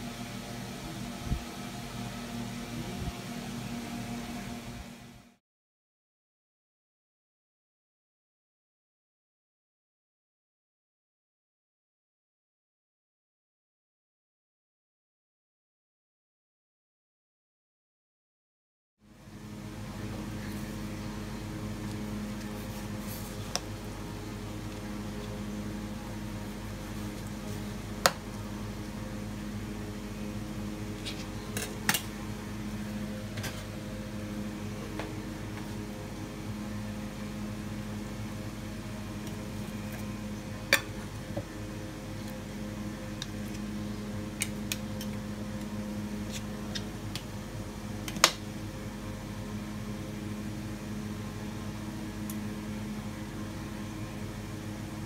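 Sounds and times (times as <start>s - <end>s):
appliance motor humming: 19.3s - 55.0s.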